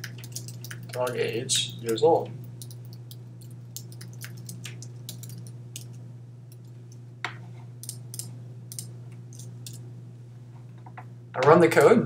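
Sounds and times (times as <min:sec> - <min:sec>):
keyboard keys clicking: 0:00.0 - 0:01.2, 0:03.8 - 0:06.0
steady low hum: 0:00.0 - 0:12.0.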